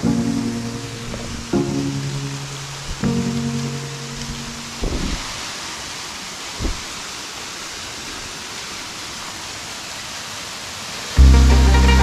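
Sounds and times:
waterfall rushing: 0.0s - 12.0s
short low thump: 4.2s - 5.3s, 6.6s - 6.8s.

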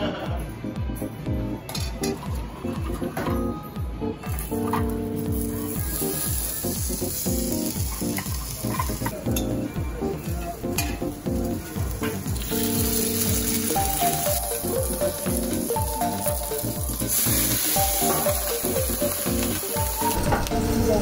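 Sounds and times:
background music with beat: 0.0s - 21.0s
food sizzling in oil: 4.4s - 21.0s.

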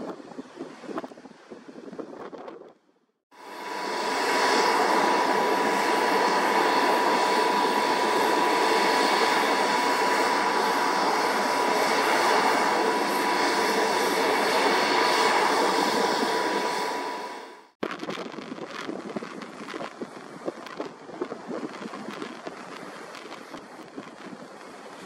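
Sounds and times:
jet engines idling: 3.4s - 18.4s.

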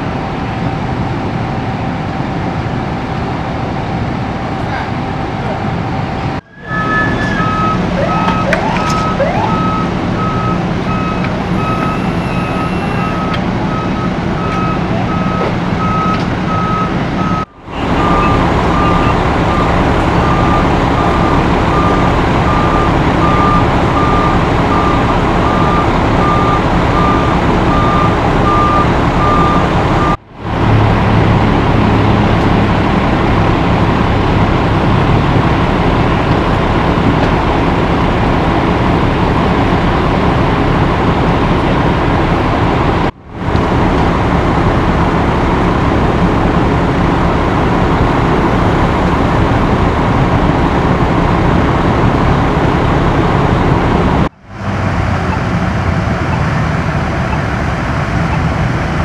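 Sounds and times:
diesel engines idling: 0.0s - 59.0s
vehicle warning beeper: 4.9s - 30.2s.

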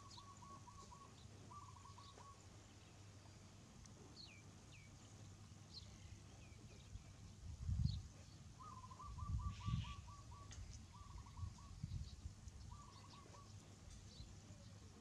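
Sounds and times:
bird trilling: 0.0s - 2.4s, 8.6s - 11.9s, 12.7s - 13.5s.

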